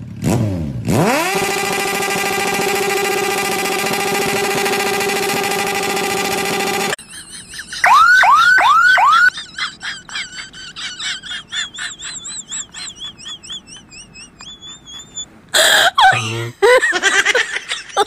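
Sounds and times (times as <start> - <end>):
car alarm siren: 7.7 - 9.5.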